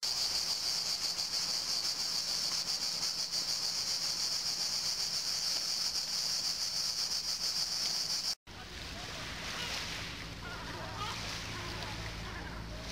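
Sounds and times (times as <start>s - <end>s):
cicadas buzzing: 0.0s - 8.4s.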